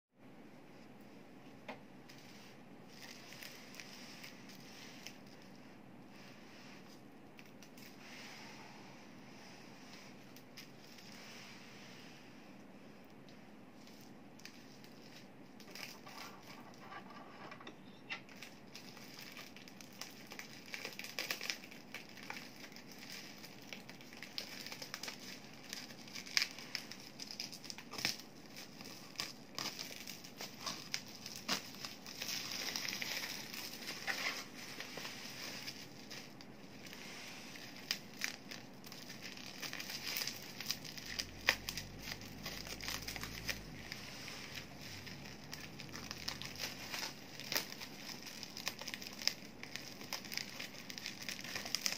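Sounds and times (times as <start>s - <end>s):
bubble wrap crinkling: 2.0s - 8.6s, 9.4s - 51.9s
scissors cutting bubble wrap: 18.3s - 51.9s.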